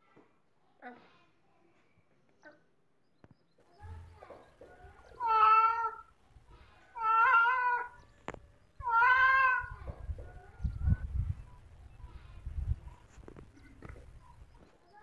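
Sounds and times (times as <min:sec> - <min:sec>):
cat meowing: 0:05.2 - 0:06.1, 0:06.9 - 0:08.0, 0:08.8 - 0:10.0.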